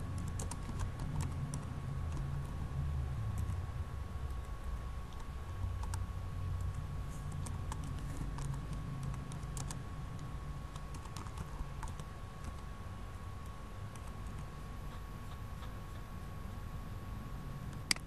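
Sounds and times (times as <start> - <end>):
low steady hum: 0.0 - 18.0
keyboard typing clicks: 0.1 - 2.3, 5.1 - 6.0, 6.6 - 9.8, 10.7 - 12.7.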